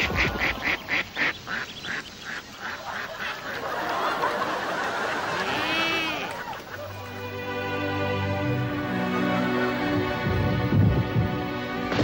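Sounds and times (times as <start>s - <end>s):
goose honking: 5.3s - 7.1s.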